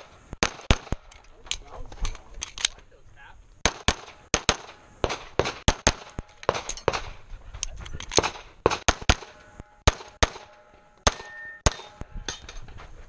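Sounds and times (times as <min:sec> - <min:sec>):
pistol shots: 0:00.0 - 0:01.1, 0:03.6 - 0:07.2, 0:08.1 - 0:12.0.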